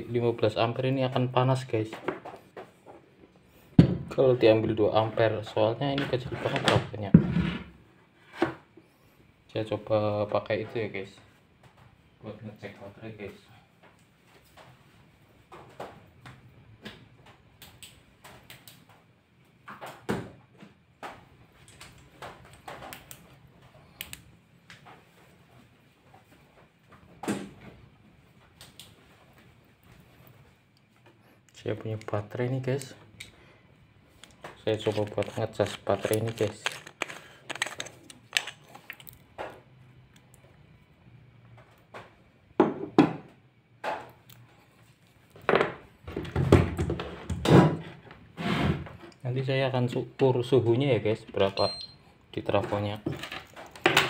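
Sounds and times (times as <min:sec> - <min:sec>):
objects knocking on a workbench: 0:03.8 - 0:04.1, 0:06.6 - 0:07.7, 0:42.6 - 0:44.0
clicks and knocks of handling: 0:34.1 - 0:40.5, 0:52.6 - 0:54.0.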